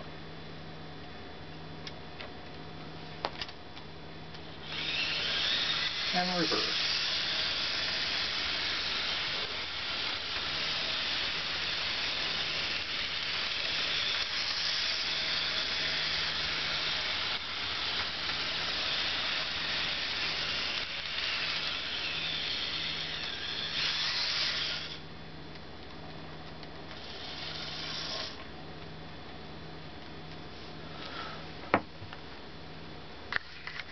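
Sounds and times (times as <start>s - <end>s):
model train motor whirring: 4.6s - 25.0s, 26.9s - 28.4s
wheels hissing on rails: 4.9s - 25.0s.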